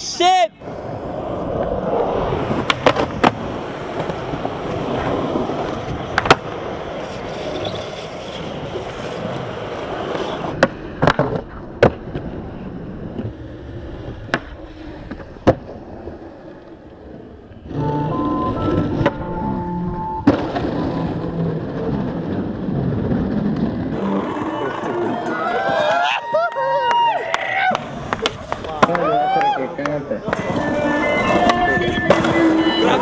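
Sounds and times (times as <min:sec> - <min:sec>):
skateboard wheels rolling on pavement: 0:00.0 - 0:33.0
skateboard clacking on ground: 0:01.5 - 0:12.4, 0:27.0 - 0:33.0.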